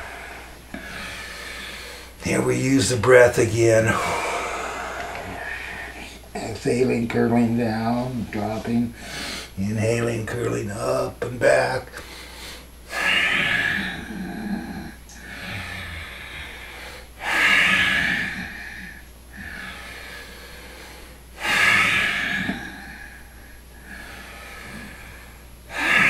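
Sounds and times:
man breathing deeply: 0:00.0 - 0:02.2, 0:03.9 - 0:06.3, 0:08.9 - 0:09.6, 0:12.0 - 0:26.0.

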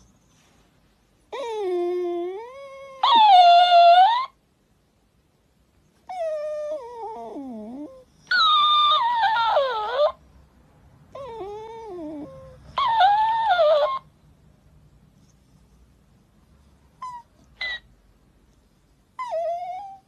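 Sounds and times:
dog whining: 0:01.3 - 0:04.4, 0:06.0 - 0:10.2, 0:11.1 - 0:14.1, 0:17.0 - 0:17.9, 0:19.1 - 0:20.0.

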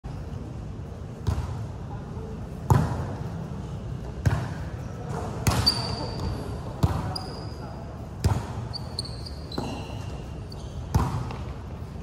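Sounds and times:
volleyball hits echoing: 0:02.6 - 0:03.3, 0:04.2 - 0:07.2, 0:08.2 - 0:08.6, 0:10.9 - 0:11.6.

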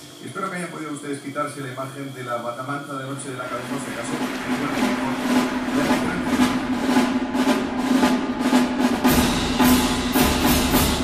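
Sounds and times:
drum roll: 0:02.1 - 0:11.0
orchestral music: 0:02.9 - 0:11.0
deep bass notes: 0:03.3 - 0:10.6.

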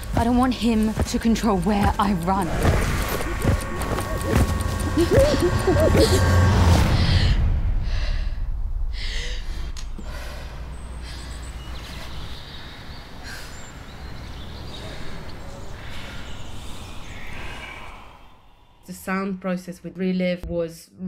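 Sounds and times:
low rumble: 0:00.0 - 0:13.3.

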